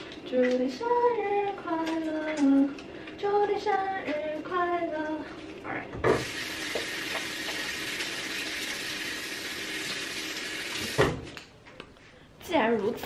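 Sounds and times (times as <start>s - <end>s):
tap water running into sink: 6.1s - 11.2s.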